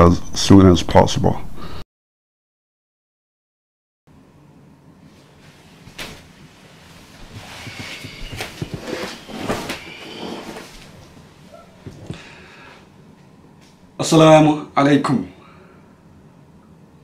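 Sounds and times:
clothing rustle: 5.1s - 11.2s
office chair knocks: 7.4s - 9.7s.

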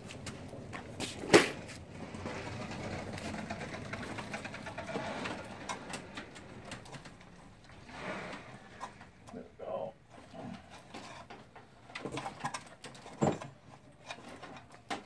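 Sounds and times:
faint rustling and shuffling: 0.0s - 9.2s.

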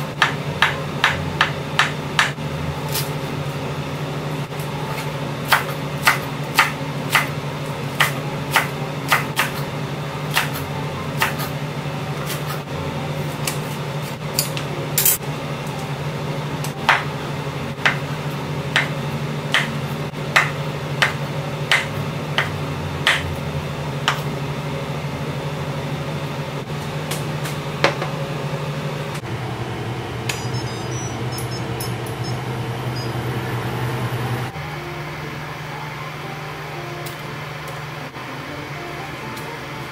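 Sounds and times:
low hum: 28.2s - 39.9s.

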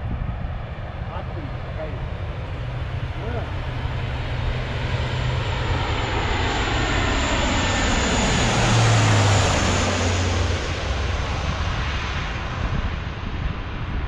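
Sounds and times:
turboprop plane passing: 0.0s - 14.0s.

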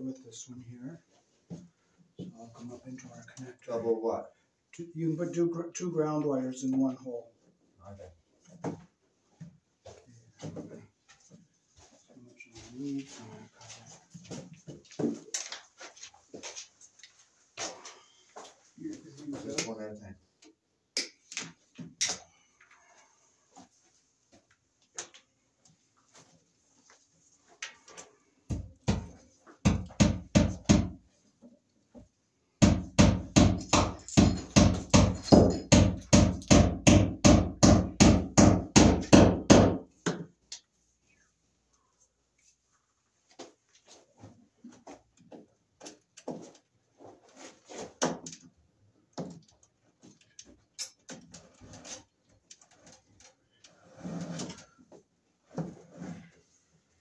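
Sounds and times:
rapid sharp knocks: 32.6s - 39.8s.

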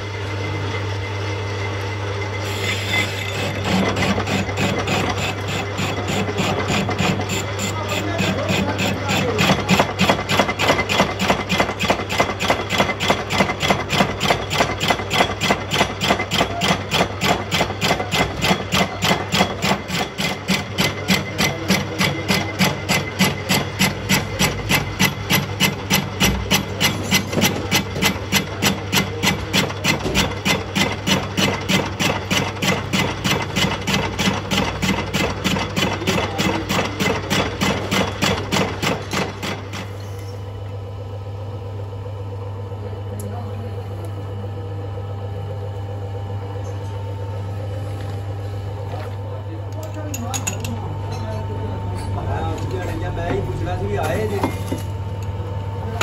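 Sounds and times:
lathe low hum: 0.0s - 56.0s
rhythmic knocking of lathe: 2.6s - 40.0s.

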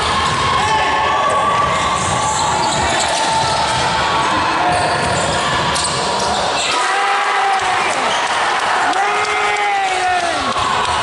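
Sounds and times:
basketball bouncing: 1.5s - 4.0s
sneaker squeaks: 1.8s - 3.7s, 4.6s - 6.8s.

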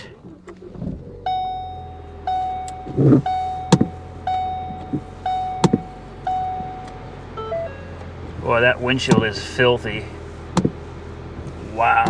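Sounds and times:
car engine idling: 0.0s - 12.0s
car warning chime dinging: 0.5s - 9.5s.

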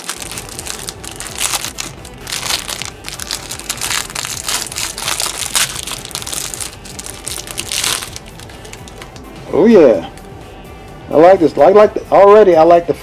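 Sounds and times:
plastic wrap crinkling: 0.0s - 9.2s.

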